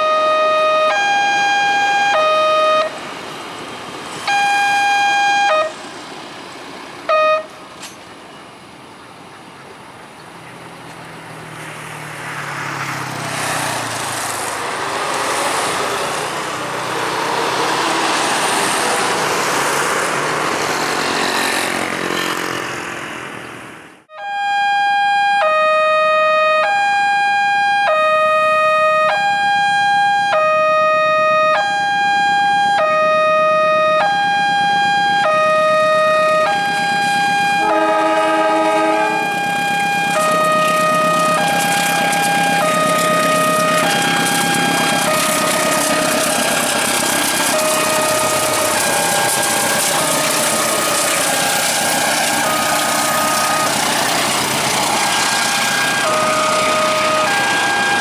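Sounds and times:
level crossing two-tone alarm: 0.0 - 3.0, 4.3 - 5.8, 24.1 - 37.8, 39.2 - 54.1, 55.4 - 58.0
train rolling past: 0.0 - 23.9, 31.2 - 58.0.

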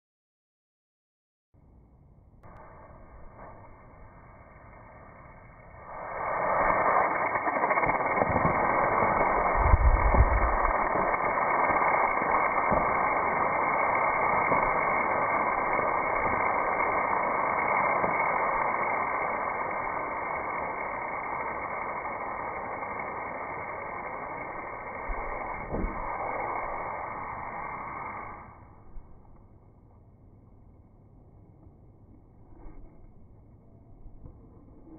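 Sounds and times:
rocket motor rushing hiss: 2.4 - 29.2.

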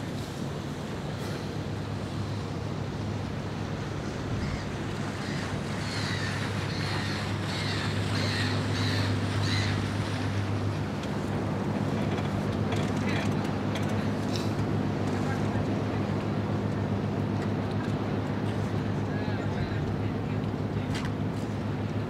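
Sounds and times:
boat engine hum: 0.0 - 22.0
water noise: 0.0 - 22.0
wind: 0.0 - 22.0
gull crying: 4.4 - 9.8.

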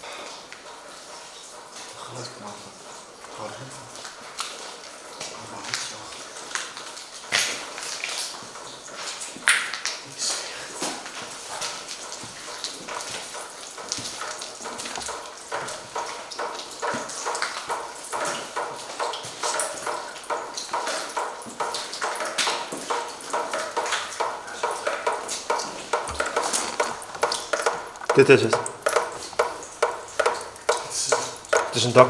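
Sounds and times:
footsteps on debris-strewn floor: 22.3 - 31.8.

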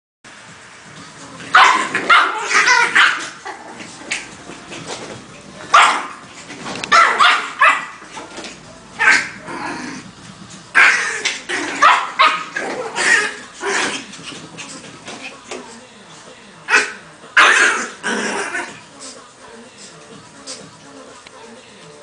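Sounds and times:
small dogs barking and yipping: 1.5 - 5.0, 5.6 - 8.3, 9.0 - 9.5, 10.7 - 15.5, 16.7 - 18.8.

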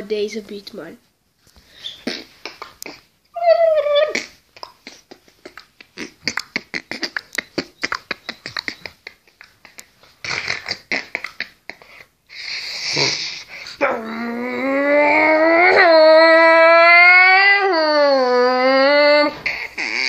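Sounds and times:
beatboxing clicks and pops: 2.0 - 3.1, 4.1 - 11.9.

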